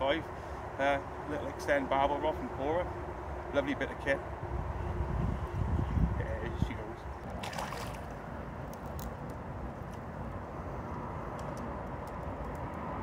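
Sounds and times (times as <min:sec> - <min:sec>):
low water rush: 0:06.0 - 0:10.5
fish splashing at water surface: 0:07.3 - 0:08.2.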